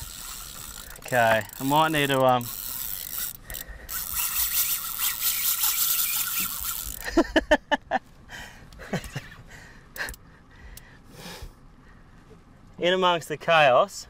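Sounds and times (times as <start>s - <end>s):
fishing reel clicking: 0.0s - 7.1s
short loud squeaks: 4.0s - 7.0s.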